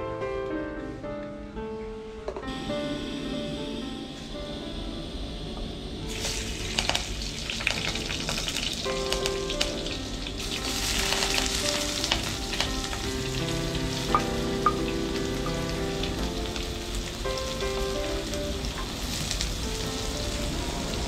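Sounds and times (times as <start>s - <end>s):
background music: 0.0s - 21.0s
onions sizzling in hot oil: 6.0s - 21.0s.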